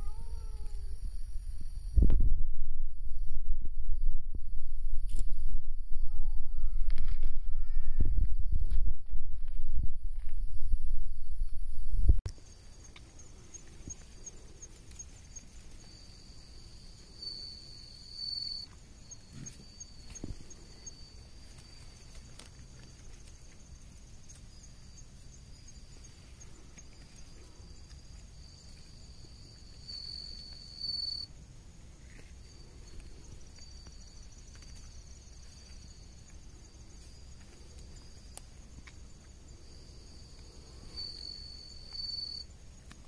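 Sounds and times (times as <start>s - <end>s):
insects trilling: 0.0s - 2.0s, 12.3s - 43.0s
fast-pulsing high insect trill: 12.4s - 22.2s, 23.2s - 31.3s, 39.7s - 42.5s.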